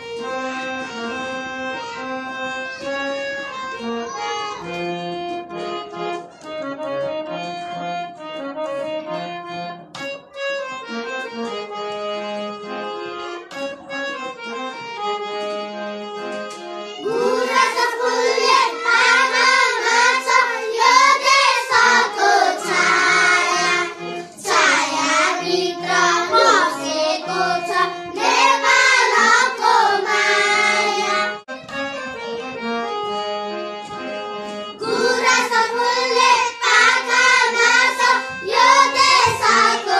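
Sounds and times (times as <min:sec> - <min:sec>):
children singing together: 0:16.9 - 0:31.5, 0:34.8 - 0:39.9.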